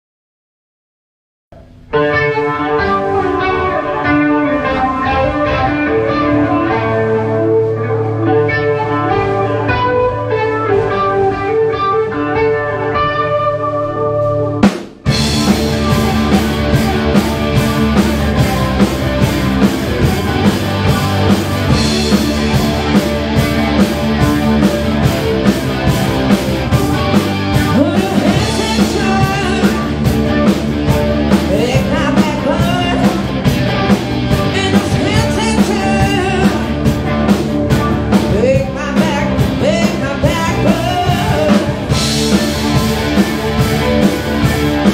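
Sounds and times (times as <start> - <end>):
bass guitar: 1.5 - 44.9
drum kit: 1.5 - 44.9
electric guitar notes: 1.5 - 44.9
woman singing: 27.6 - 29.9, 31.5 - 33.3, 34.4 - 36.7, 38.3 - 41.8.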